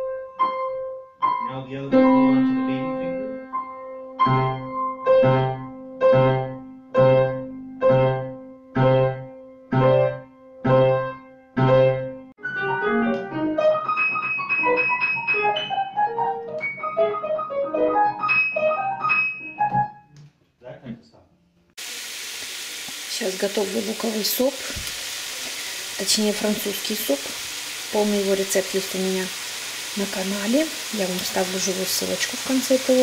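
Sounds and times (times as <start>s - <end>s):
quick piano passage: 0.0s - 20.0s
grand piano chords: 0.0s - 20.2s.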